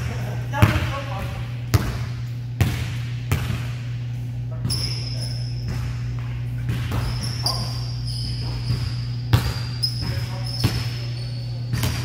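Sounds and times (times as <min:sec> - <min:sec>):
steady low hum: 0:00.0 - 0:12.0
sneaker squeaks: 0:03.4 - 0:12.0.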